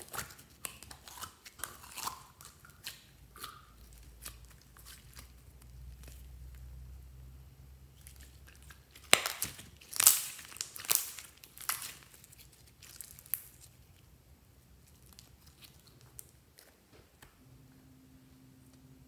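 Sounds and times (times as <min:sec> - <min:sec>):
slime crackling and popping: 0:00.0 - 0:06.7, 0:08.0 - 0:14.0
slime squishing: 0:00.0 - 0:07.0, 0:07.9 - 0:17.2.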